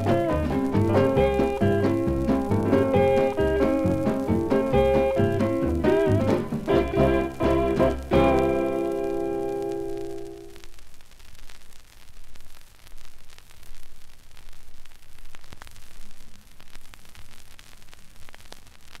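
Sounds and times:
record surface hiss and crackle: 0.0 - 19.0.

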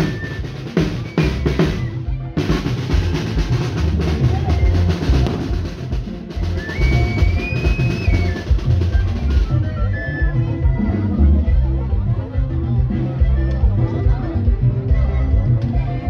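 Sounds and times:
bass drum and snare beating: 0.0 - 10.7.

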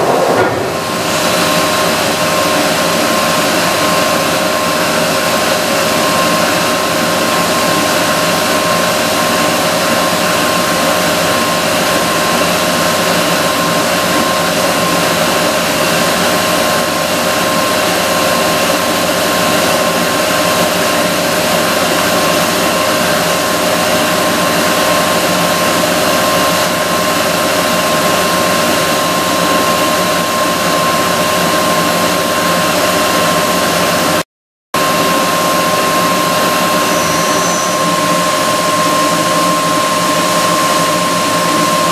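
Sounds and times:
machine high whine: 0.0 - 16.7, 34.8 - 41.9.

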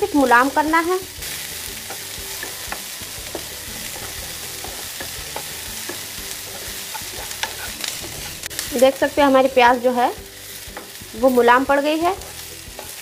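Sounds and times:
onions sizzling in oil: 0.0 - 13.0
wooden spatula scraping pan: 1.2 - 8.8.

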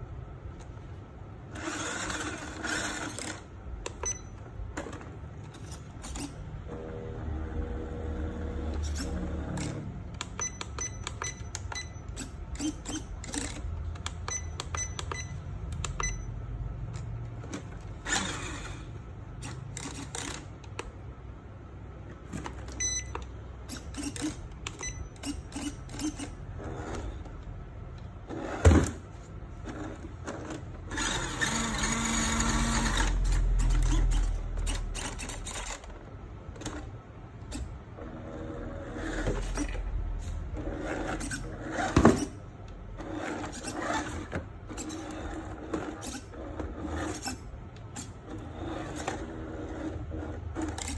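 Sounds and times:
small electric motor running: 18.0 - 18.9, 30.9 - 35.5.

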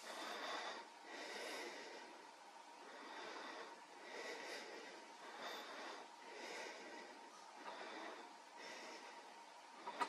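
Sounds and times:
soft breathing: 0.0 - 10.0.

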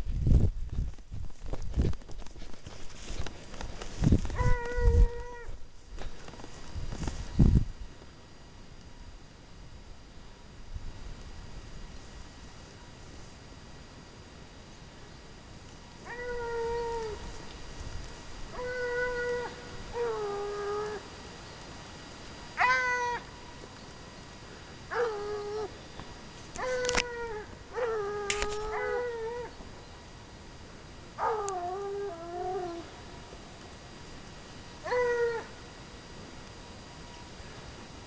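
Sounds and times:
hounds baying: 24.9 - 25.8, 26.6 - 29.7, 34.8 - 35.6.

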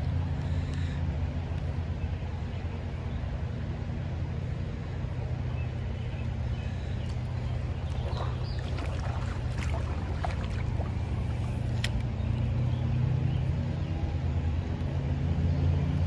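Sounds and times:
creek water rushing: 4.6 - 12.6.

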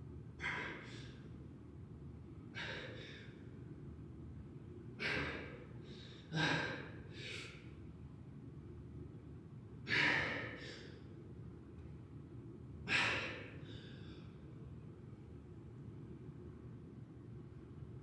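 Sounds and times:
man exhaling forcefully: 0.4 - 1.0, 2.6 - 3.2, 5.0 - 7.6, 9.9 - 10.8, 12.9 - 14.1.

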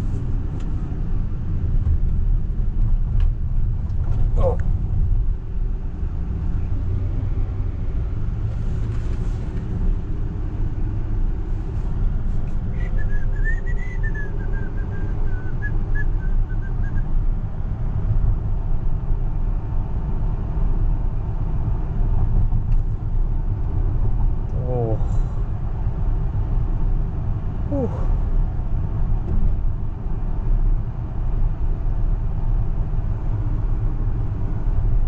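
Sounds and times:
road and tyre rumble: 0.0 - 35.0
wavering whistle-like tone: 12.7 - 17.1.

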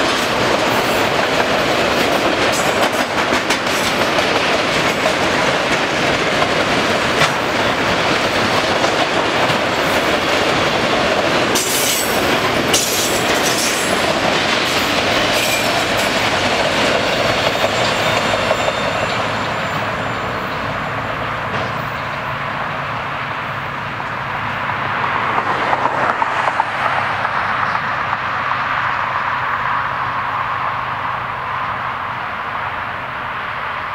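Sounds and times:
freight train wheels on rails: 0.0 - 33.9
high wheel squeal: 17.0 - 21.0.

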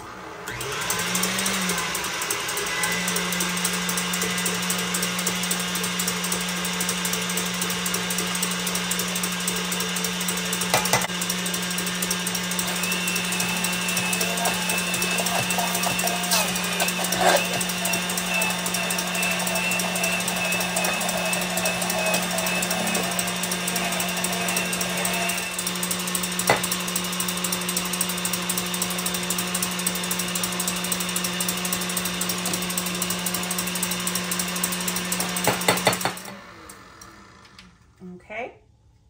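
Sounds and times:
stand mixer motor humming: 0.0 - 37.7
immersion blender motor: 0.0 - 37.9
mixer clicks: 0.6 - 27.5.

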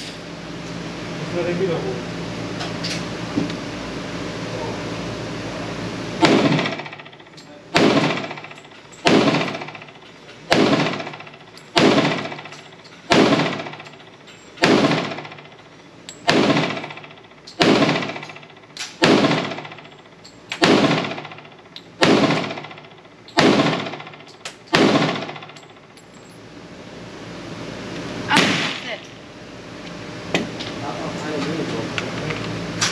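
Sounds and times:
pistol shots with echo: 6.2 - 9.9, 10.5 - 12.5, 13.1 - 13.8, 14.6 - 15.4, 16.2 - 17.0, 17.6 - 18.3, 19.0 - 19.8, 20.6 - 21.4, 22.0 - 25.6, 28.3 - 29.0.

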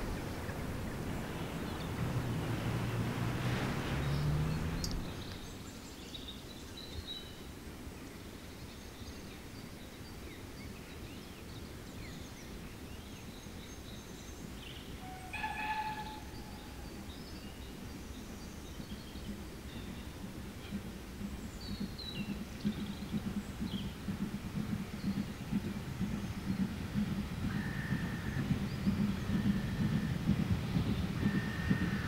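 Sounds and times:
wind rumble on microphone: 0.0 - 32.0
bird chirps: 3.8 - 7.4, 14.7 - 20.8, 24.6 - 32.0.

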